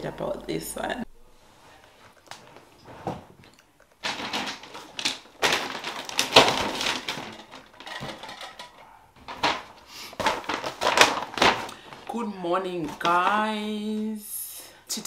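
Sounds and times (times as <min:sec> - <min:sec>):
paper bag rustling: 0:04.0 - 0:14.1.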